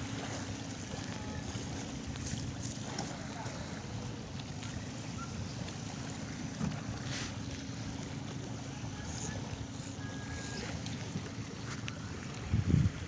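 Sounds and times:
waves washing on beach: 0:00.0 - 0:13.0
wind rumble on microphone: 0:08.7 - 0:13.0.

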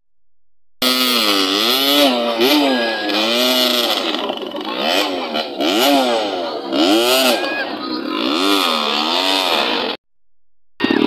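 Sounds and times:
dirt bike engine revving: 0:00.8 - 0:10.0.

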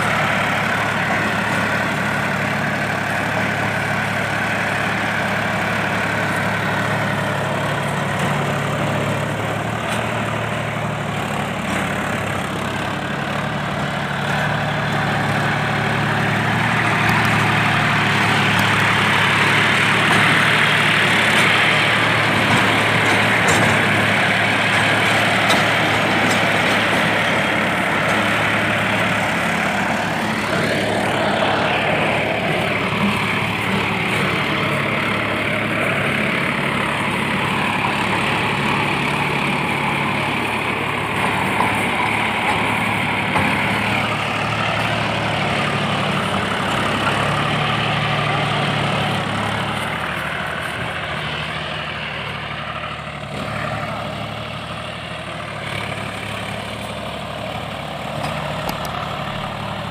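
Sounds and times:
rotavator grinding soil: 0:00.0 - 0:59.9
tractor diesel engine: 0:00.0 - 0:59.9.

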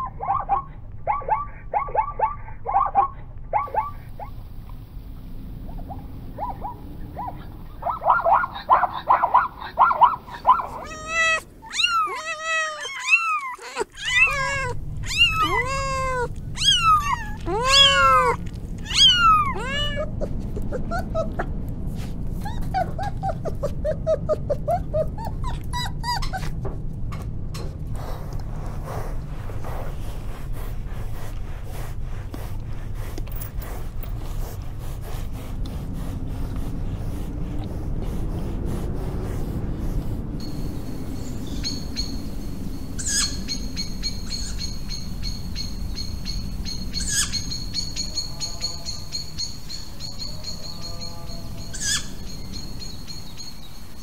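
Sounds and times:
short yelping calls: 0:00.0 - 0:04.3, 0:05.9 - 0:21.4, 0:43.0 - 0:44.7, 0:46.9 - 0:47.6, 0:51.7 - 0:52.2
low steady hum: 0:00.0 - 0:54.0
kittens meowing: 0:10.3 - 0:21.5, 0:43.0 - 0:43.6, 0:47.0 - 0:47.5.

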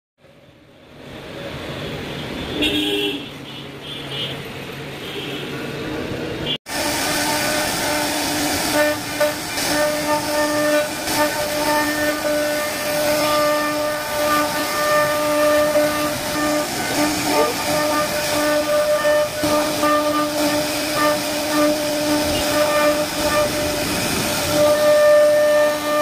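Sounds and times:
hiss of wood cutting: 0:06.7 - 0:26.0.

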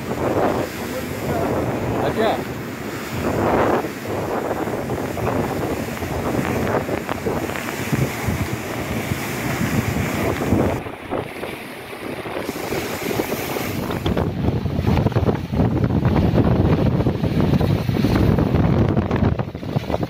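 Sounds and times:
gusty wind buffeting microphone: 0:00.0 - 0:20.0
heavy rain: 0:00.0 - 0:20.0.

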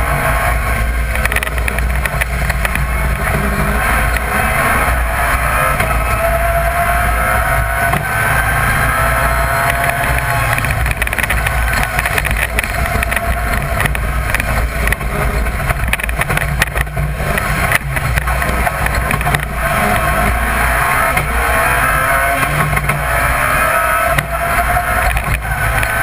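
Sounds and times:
car engine running hard: 0:00.0 - 0:26.0
knocks and rattles from car: 0:01.0 - 0:04.3, 0:09.4 - 0:21.4, 0:22.3 - 0:23.3.

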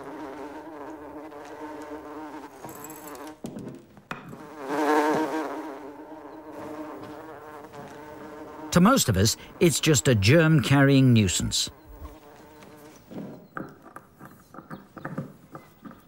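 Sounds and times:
housefly buzzing: 0:00.0 - 0:03.5, 0:04.2 - 0:13.2.

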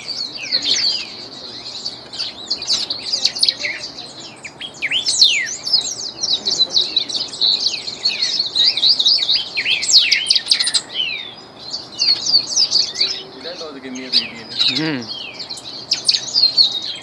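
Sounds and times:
bird singing fast warble: 0:00.0 - 0:17.0.

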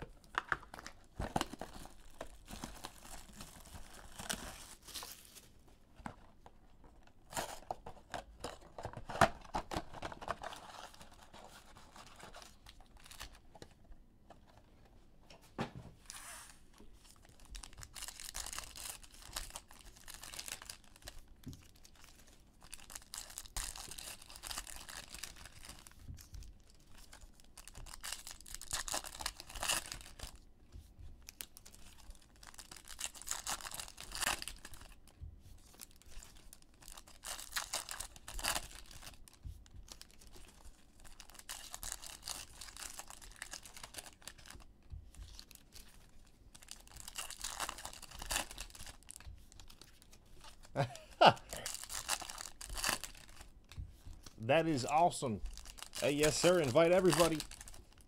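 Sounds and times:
foil wrappers crinkling and tearing: 0:00.1 - 0:05.6, 0:16.3 - 0:30.4, 0:31.2 - 0:58.0.

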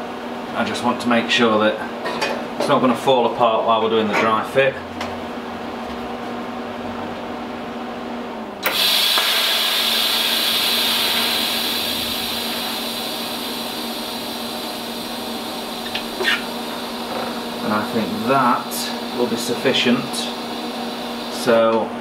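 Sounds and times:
welding arc hissing: 0:08.6 - 0:21.6.

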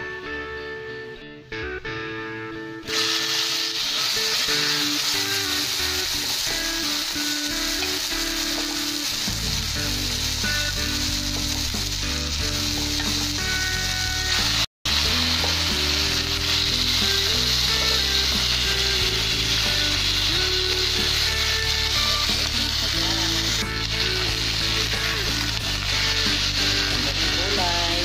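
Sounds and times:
background music: 0:00.0 - 0:28.0
chicken sizzling in skillet: 0:02.9 - 0:28.0.

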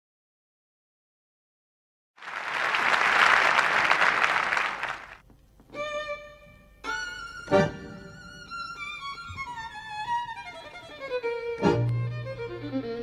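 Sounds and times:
audience applause: 0:02.2 - 0:05.2
solo violin bowed notes: 0:05.7 - 0:13.0.

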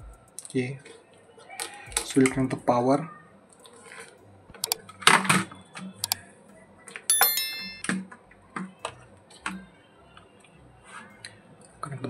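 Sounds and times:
bright bell chime: 0:07.1 - 0:07.9.

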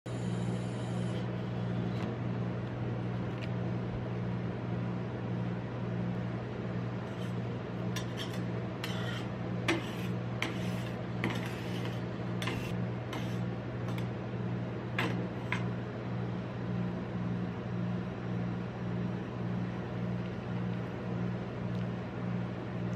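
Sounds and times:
machine low hum: 0:00.1 - 0:22.9
metal spatulas scraping steel plate: 0:07.0 - 0:07.4, 0:08.0 - 0:14.0.

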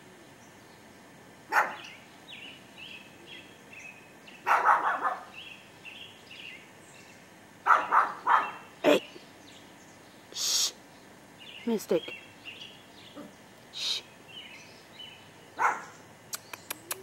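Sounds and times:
small dog barking: 0:01.5 - 0:01.9, 0:04.4 - 0:05.4, 0:07.6 - 0:08.7, 0:15.6 - 0:16.0
small bird chirping: 0:01.6 - 0:17.0.

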